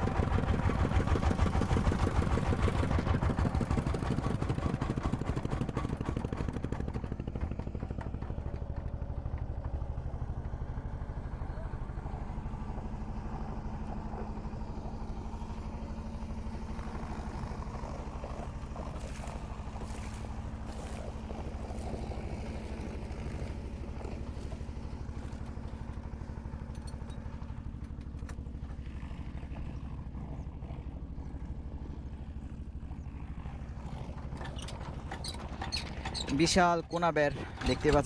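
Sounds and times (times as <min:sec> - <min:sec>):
boat engine chugging: 0:00.0 - 0:38.0
clicks and clatters: 0:34.2 - 0:38.0.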